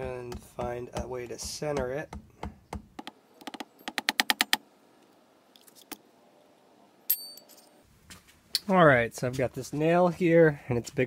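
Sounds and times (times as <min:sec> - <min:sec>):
sharp metallic clink: 0:07.1 - 0:07.8.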